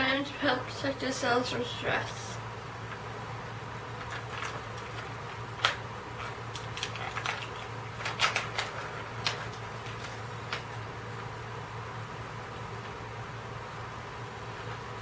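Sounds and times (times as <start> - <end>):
snack packaging crinkling: 3.9 - 11.3.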